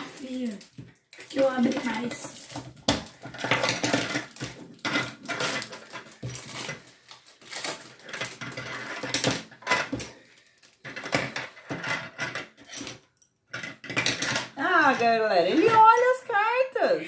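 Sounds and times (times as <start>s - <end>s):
plastic toy sticks clattering: 0.0s - 10.2s.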